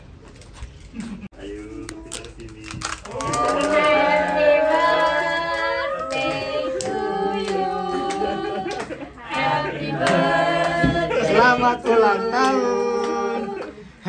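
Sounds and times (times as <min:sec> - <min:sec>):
people singing a celebration song: 0:03.2 - 0:14.0
hand clapping: 0:05.1 - 0:11.0.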